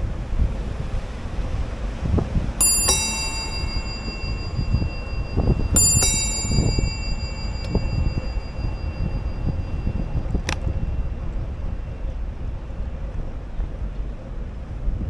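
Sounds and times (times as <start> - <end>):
low rumble: 0.0 - 15.0
bicycle bell ringing: 2.6 - 11.6.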